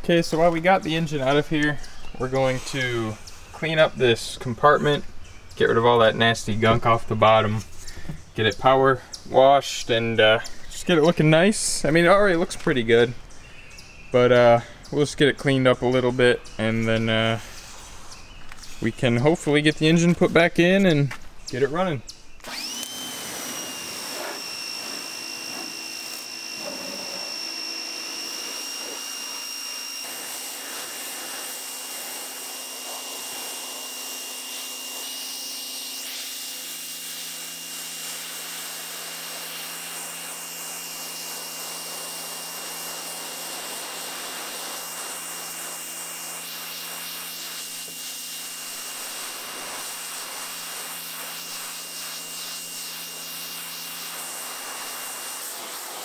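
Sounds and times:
pressure washer water jet hissing: 0:00.1 - 0:05.0, 0:22.4 - 0:56.0
high machine whine: 0:21.1 - 0:56.0.

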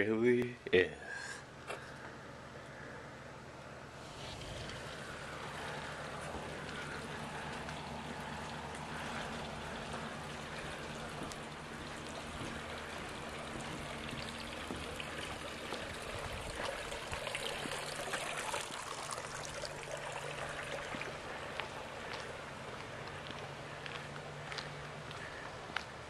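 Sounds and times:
low steady hum: 0:00.0 - 0:26.0
water trickling: 0:04.0 - 0:23.8.

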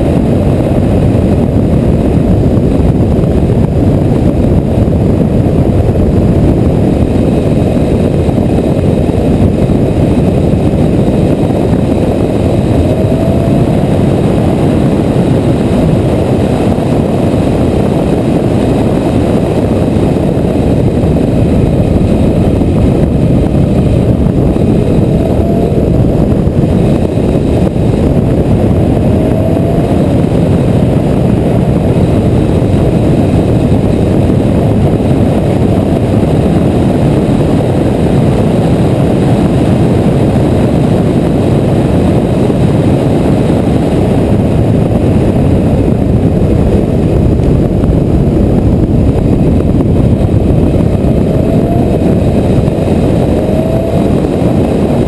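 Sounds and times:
car engine: 0:00.0 - 0:36.2, 0:43.8 - 0:55.0
wind and road noise: 0:00.0 - 0:55.0.

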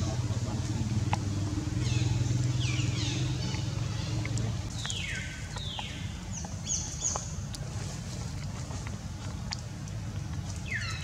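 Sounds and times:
vehicle engine running: 0:00.0 - 0:05.8.

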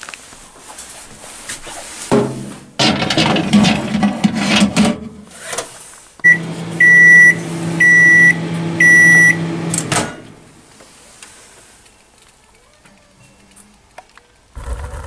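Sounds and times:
pan clattering and scraping: 0:02.1 - 0:05.8
microwave beeps: 0:06.2 - 0:09.7
microwave humming: 0:06.2 - 0:10.6.

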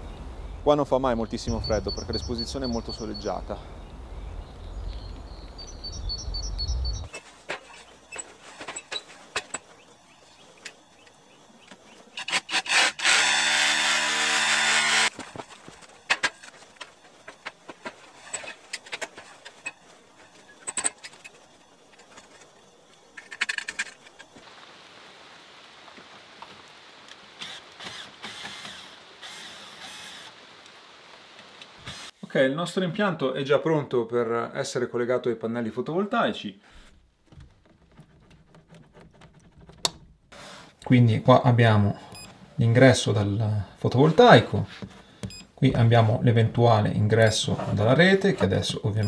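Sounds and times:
insulation sheet rustling: 0:07.1 - 0:09.9, 0:15.1 - 0:28.1, 0:36.7 - 0:40.8.

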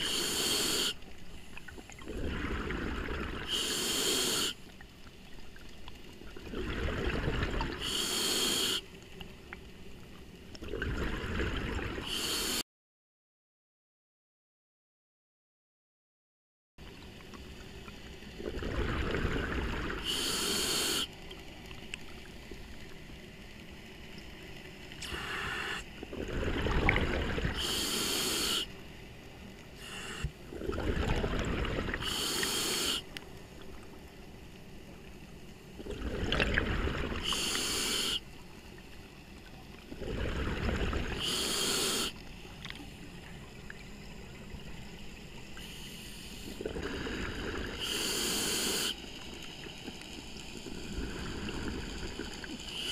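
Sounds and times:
regulator breath hiss: 0:00.0 - 0:01.0, 0:03.5 - 0:04.6, 0:07.8 - 0:08.9, 0:12.0 - 0:12.6, 0:20.0 - 0:21.2, 0:25.0 - 0:25.9, 0:27.6 - 0:28.7, 0:29.8 - 0:30.4, 0:32.0 - 0:33.1, 0:37.2 - 0:38.2, 0:41.2 - 0:42.2, 0:45.6 - 0:49.0, 0:52.6 - 0:52.9
exhaust bubbles rushing: 0:02.0 - 0:03.5, 0:06.4 - 0:07.8, 0:18.4 - 0:20.0, 0:26.1 - 0:27.6, 0:30.5 - 0:32.0, 0:35.8 - 0:37.2, 0:39.9 - 0:41.2.

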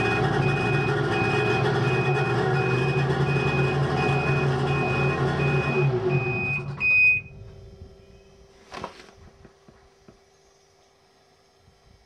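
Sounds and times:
high beep: 0:00.0 - 0:07.3.

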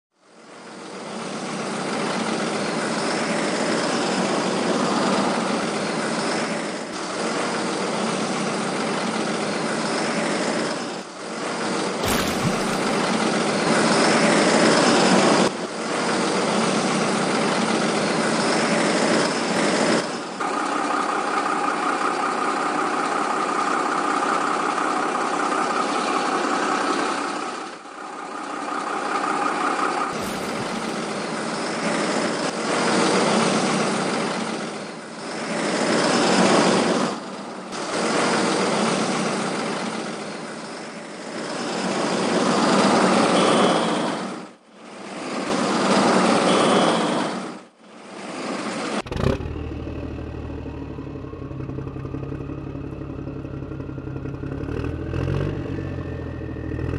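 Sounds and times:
truck engine running: 0:11.1 - 0:14.3, 0:28.0 - 0:32.4, 0:49.6 - 0:56.9.

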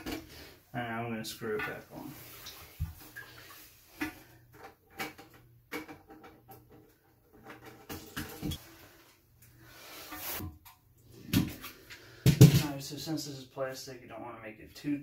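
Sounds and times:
plastic parts clicking and knocking: 0:04.6 - 0:08.6.

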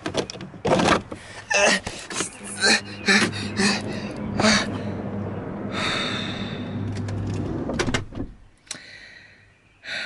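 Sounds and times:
vehicle cabin hum: 0:01.5 - 0:08.5
breathy exhale: 0:05.6 - 0:07.0, 0:08.7 - 0:10.0.

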